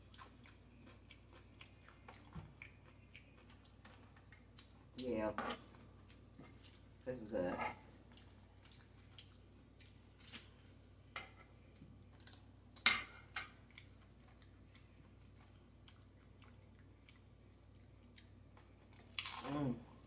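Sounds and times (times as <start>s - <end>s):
person chewing crunchy food: 0.0s - 4.9s, 8.0s - 10.8s, 13.6s - 20.0s.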